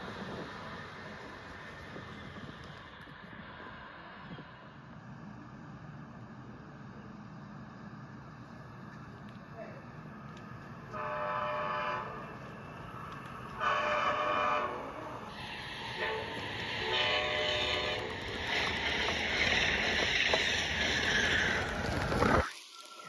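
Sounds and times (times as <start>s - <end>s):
train rushing past: 0.0s - 8.7s, 9.8s - 23.0s
train horn blasts: 10.9s - 12.4s, 13.6s - 15.3s, 15.9s - 18.2s.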